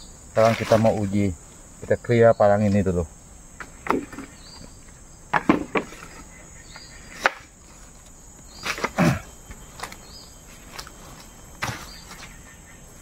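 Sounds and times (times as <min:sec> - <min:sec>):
high insect drone: 0:00.0 - 0:13.0
blade striking bamboo: 0:07.2 - 0:07.5.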